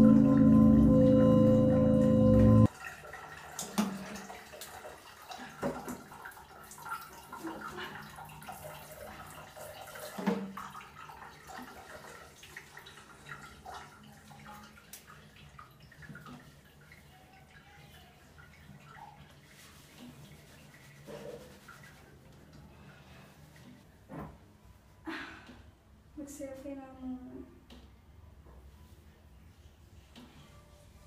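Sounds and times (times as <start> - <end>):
water splashing and dripping: 2.6 - 22.7.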